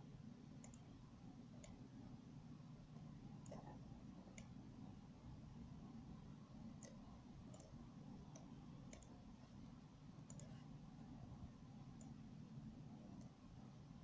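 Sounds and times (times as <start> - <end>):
low steady hum: 0.0 - 14.0
computer mouse clicks: 0.6 - 0.9, 1.6 - 1.8, 3.4 - 4.6, 6.6 - 9.2, 10.2 - 10.7, 11.9 - 12.2, 13.1 - 13.4.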